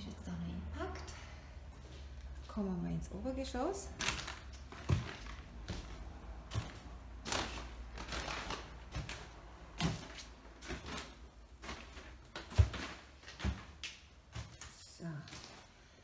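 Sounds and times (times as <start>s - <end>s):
plastic sheeting rustling: 3.9s - 16.0s
footsteps on wooden stairs: 4.6s - 14.7s.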